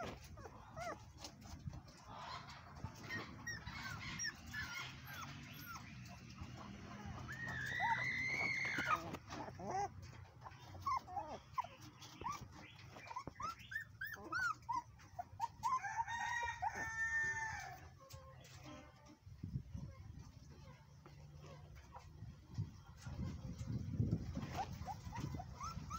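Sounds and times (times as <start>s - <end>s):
puppies whining and yelping: 0.0s - 25.9s.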